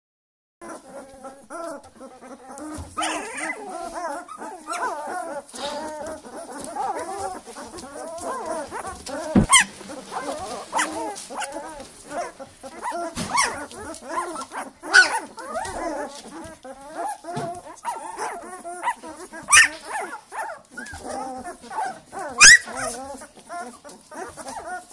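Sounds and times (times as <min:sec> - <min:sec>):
puppies whimpering and yipping: 0:00.6 - 0:24.9.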